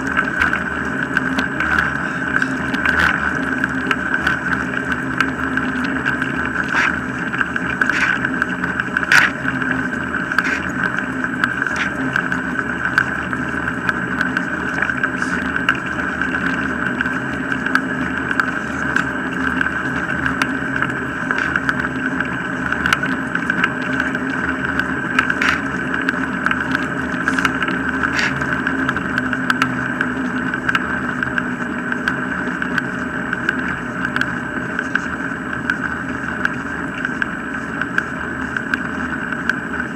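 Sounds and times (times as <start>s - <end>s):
wheels rolling over tarmac: 0.0s - 39.9s
rig clicking and knocking: 24.8s - 29.7s.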